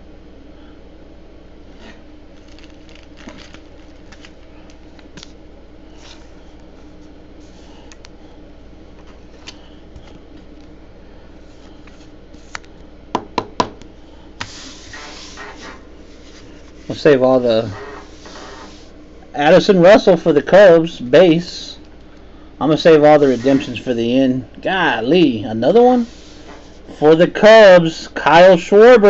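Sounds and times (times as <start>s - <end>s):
steady low hum: 0.0s - 29.0s
cards rustling: 2.4s - 8.0s.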